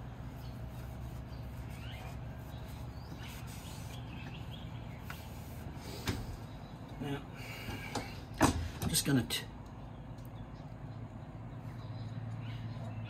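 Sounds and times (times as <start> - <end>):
birds chirping: 0.0 - 13.0
cloth rubbing on metal blade: 0.5 - 4.2.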